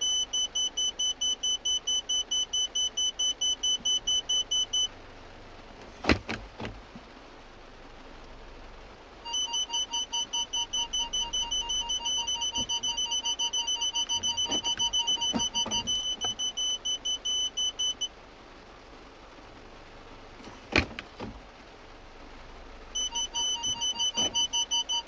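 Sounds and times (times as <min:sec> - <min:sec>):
high parking sensor beeps: 0:00.0 - 0:04.9, 0:09.2 - 0:18.1, 0:23.0 - 0:25.0
low parking sensor beeps: 0:00.0 - 0:04.9, 0:09.2 - 0:18.2, 0:23.0 - 0:25.0.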